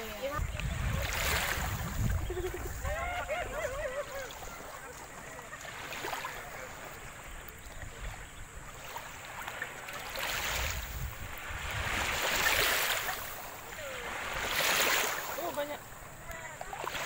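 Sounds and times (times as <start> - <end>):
wind on microphone: 0.0 - 4.6, 10.2 - 14.7
small waves lapping: 0.0 - 17.0.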